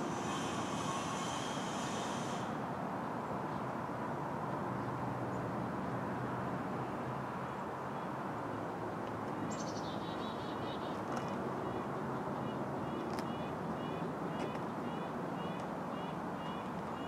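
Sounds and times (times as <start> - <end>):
distant road traffic hum: 0.0 - 17.0
bird chirping: 9.5 - 11.0.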